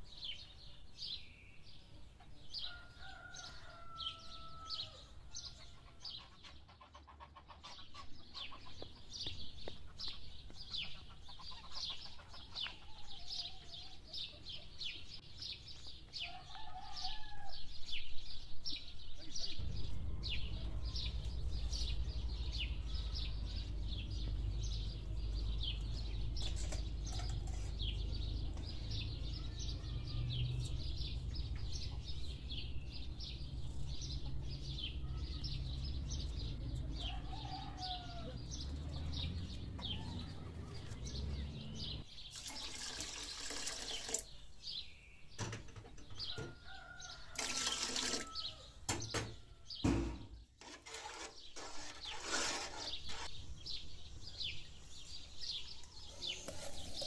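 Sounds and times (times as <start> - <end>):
small birds chirping: 0.0 - 57.0
water pouring into pot: 42.3 - 44.3, 47.4 - 48.2.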